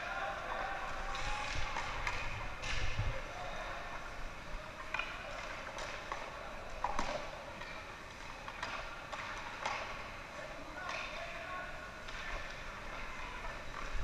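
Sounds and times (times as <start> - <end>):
hockey sticks and puck clacking: 0.0 - 3.3, 4.7 - 14.0
steady rink din: 4.8 - 11.4.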